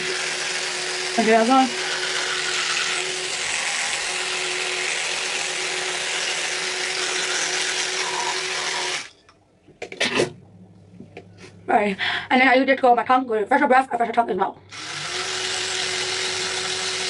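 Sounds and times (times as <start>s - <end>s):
electric toothbrush buzzing: 0.0s - 9.1s, 14.7s - 17.0s.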